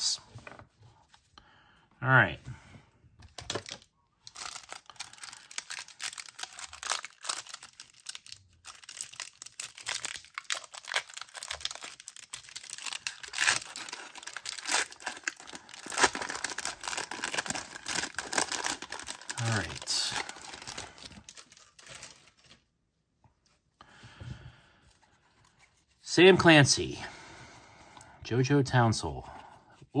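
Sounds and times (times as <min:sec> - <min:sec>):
foil wrapper crinkling and tearing: 0:03.3 - 0:22.7.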